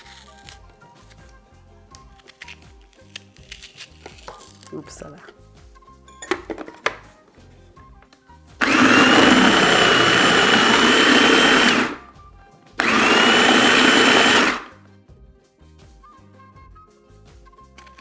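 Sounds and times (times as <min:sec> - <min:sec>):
blades chopping vegetables: 0:08.6 - 0:12.0, 0:12.8 - 0:14.7
food processor motor whine: 0:08.6 - 0:12.1, 0:12.8 - 0:14.8.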